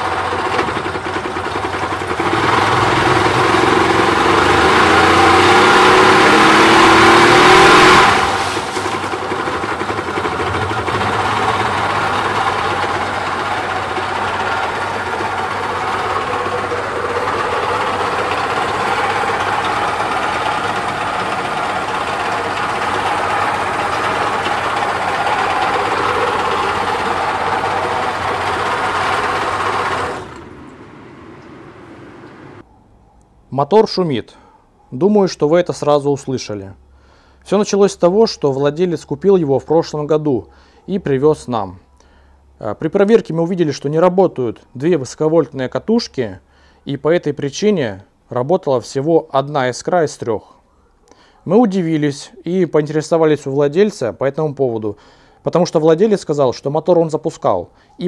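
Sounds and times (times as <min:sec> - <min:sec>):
crankshaft bearing noise: 0:00.0 - 0:32.6
outboard motor running: 0:00.0 - 0:32.6.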